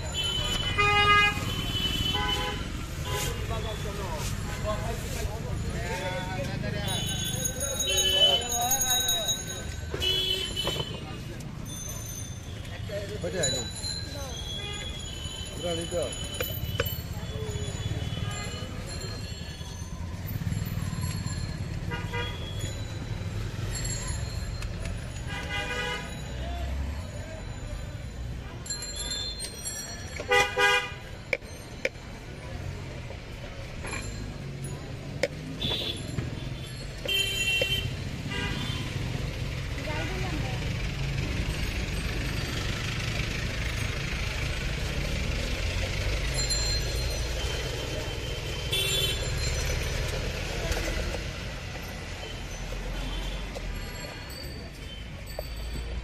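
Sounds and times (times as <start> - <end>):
street traffic: 0.0 - 56.0
vehicle horn toot: 48.6 - 49.3.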